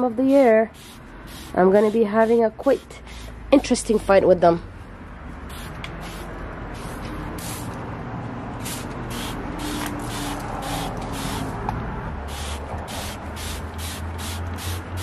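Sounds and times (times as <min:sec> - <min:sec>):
road traffic hum: 0:00.0 - 0:15.0
insecticide sprayer spraying bursts: 0:00.7 - 0:02.5, 0:08.6 - 0:11.5, 0:12.3 - 0:15.0.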